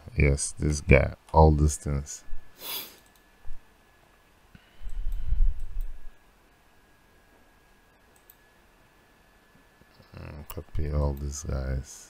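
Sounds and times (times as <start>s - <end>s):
computer mouse clicks: 8.1s - 8.4s.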